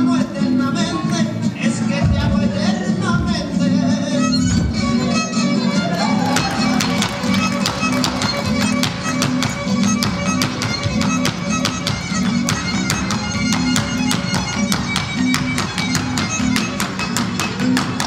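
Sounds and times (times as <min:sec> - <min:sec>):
folk music with violin: 0:00.0 - 0:18.0
rapid sharp taps: 0:06.8 - 0:18.0.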